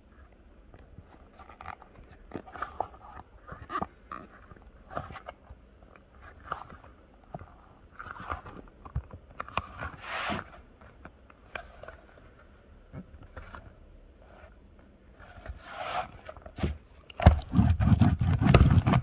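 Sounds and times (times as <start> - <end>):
fabric rasp: 15.3 - 19.0.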